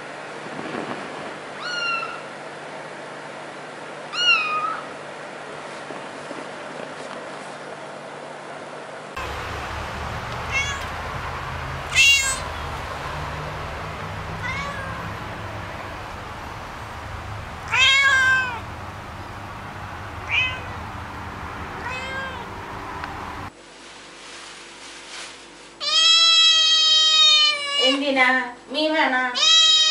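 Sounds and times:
cat meowing: 0:01.6 - 0:02.3, 0:04.1 - 0:04.9, 0:10.1 - 0:18.7, 0:20.0 - 0:20.9, 0:21.8 - 0:22.6, 0:25.8 - 0:28.0, 0:29.4 - 0:29.9
steady low hum: 0:09.2 - 0:23.5.

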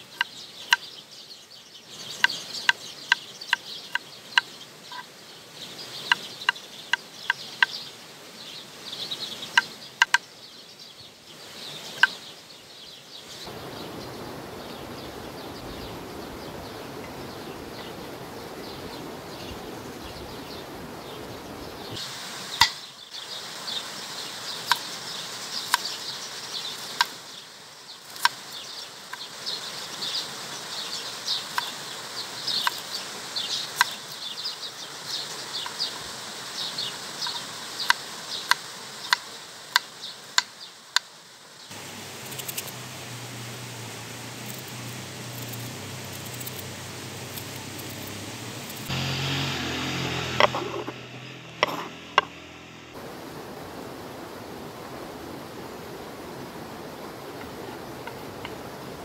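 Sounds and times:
insects or birds chirping: 0:00.0 - 0:59.0
steady rushing noise: 0:41.7 - 0:57.0
knife chopping on wooden board: 0:51.6 - 0:52.3.

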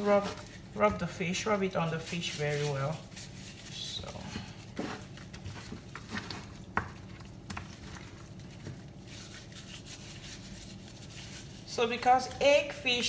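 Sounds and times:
hands rubbing seasoning into fish: 0:01.6 - 0:04.2, 0:08.1 - 0:12.4.

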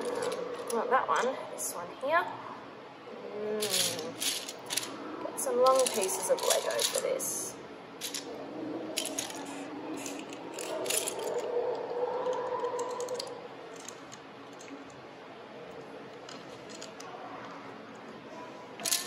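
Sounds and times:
plastic bricks clicking and clattering: 0:03.6 - 0:04.9, 0:05.6 - 0:07.1, 0:08.0 - 0:08.2, 0:09.0 - 0:11.5, 0:12.7 - 0:14.8.

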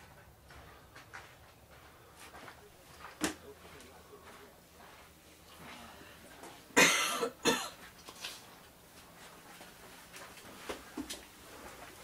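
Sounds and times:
person coughing: 0:06.8 - 0:07.8.

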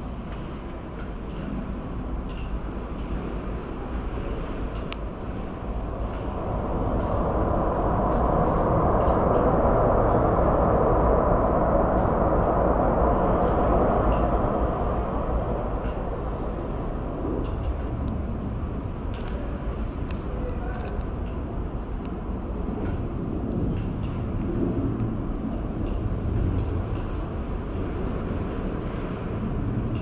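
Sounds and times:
jet engine roar: 0:05.2 - 0:21.2, 0:22.2 - 0:30.0.

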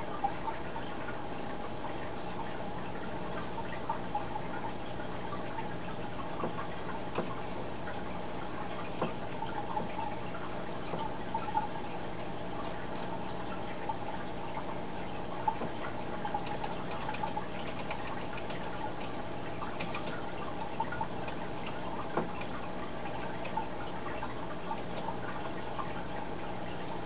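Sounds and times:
electrical hum: 0:00.0 - 0:27.0
water trickling: 0:00.0 - 0:27.0
faint ticks and clicks: 0:15.4 - 0:26.0.

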